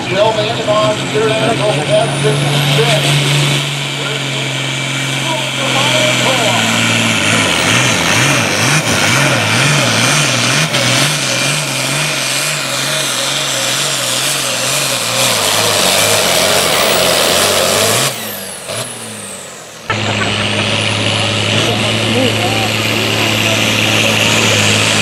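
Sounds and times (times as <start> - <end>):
tractor diesel engine under load: 0.0 - 25.0.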